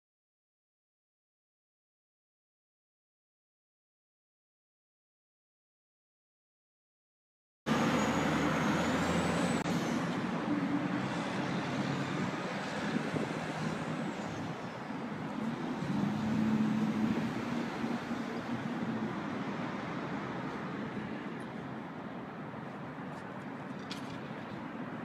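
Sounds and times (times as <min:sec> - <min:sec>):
city street traffic: 0:07.7 - 0:25.0
large vehicle engine humming: 0:07.7 - 0:25.0.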